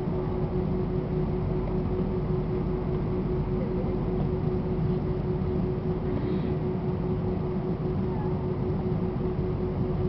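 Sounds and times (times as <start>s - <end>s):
jet engines humming in cabin: 0.0s - 10.0s.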